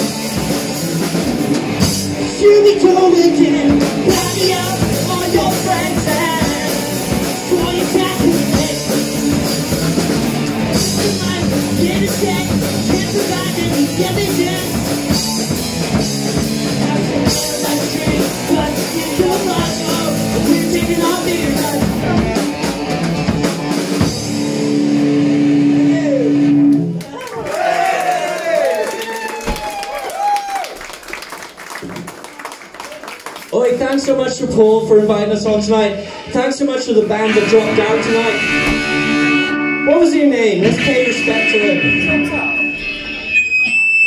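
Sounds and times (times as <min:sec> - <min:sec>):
live rock band playing: 0:00.0 - 0:27.0, 0:36.9 - 0:44.0.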